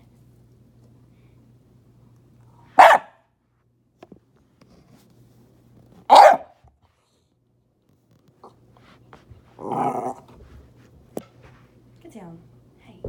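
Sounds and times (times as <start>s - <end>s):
dog barking: 2.7s - 3.2s, 6.1s - 6.6s.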